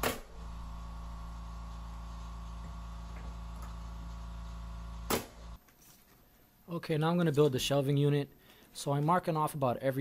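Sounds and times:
nail gun firing: 0:00.0 - 0:00.5, 0:05.0 - 0:05.5
steady mechanical hum: 0:00.0 - 0:05.6.

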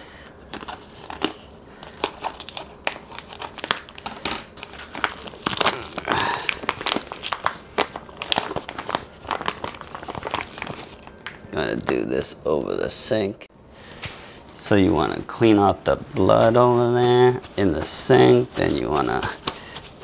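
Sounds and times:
plastic bag crinkling: 0:00.5 - 0:11.5, 0:16.1 - 0:20.0.

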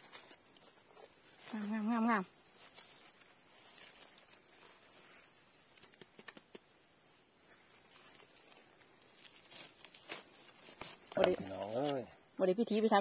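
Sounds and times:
hands rustling in dry leaves: 0:00.0 - 0:06.2, 0:07.8 - 0:12.0
high-pitched insect drone: 0:00.0 - 0:13.0.

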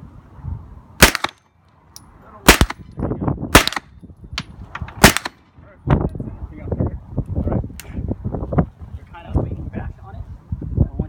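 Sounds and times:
submachine gun single shots: 0:01.0 - 0:01.4, 0:02.5 - 0:02.8, 0:03.5 - 0:03.9, 0:05.0 - 0:05.4.

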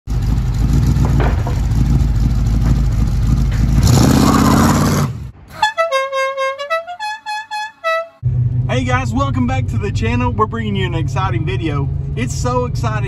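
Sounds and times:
car engine rumbling and revving: 0:00.1 - 0:05.6, 0:08.2 - 0:13.0
horn-like tune: 0:05.5 - 0:08.2.

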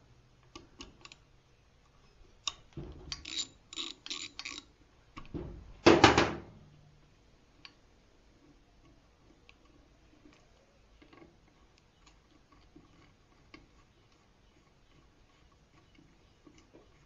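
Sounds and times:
ratchet wrench clicking: 0:02.4 - 0:04.7.

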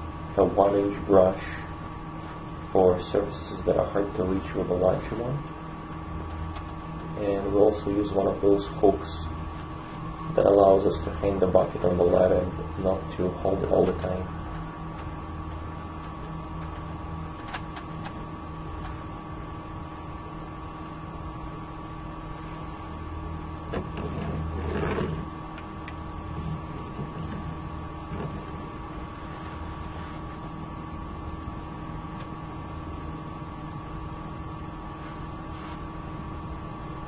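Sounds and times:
steady hum of constant tones: 0:00.0 - 0:37.0.

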